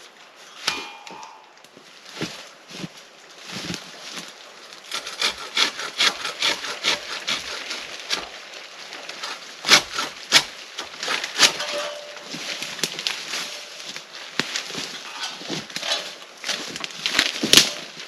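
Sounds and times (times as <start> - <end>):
crosscut saw rasping through wood: 4.9 - 8.3, 9.1 - 11.6.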